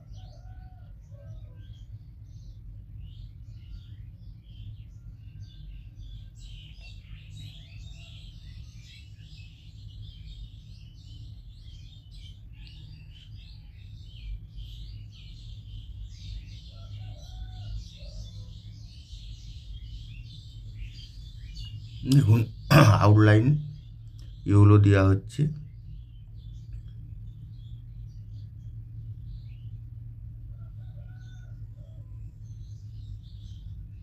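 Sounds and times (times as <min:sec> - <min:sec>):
small birds chirping: 0:00.0 - 0:34.0
low hum: 0:18.4 - 0:34.0.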